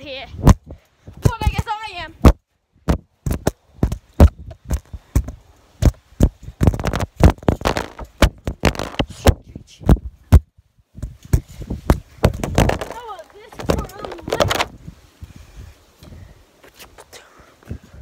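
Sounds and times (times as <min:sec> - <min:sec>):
handling rustling: 0:06.4 - 0:09.1, 0:12.2 - 0:14.8.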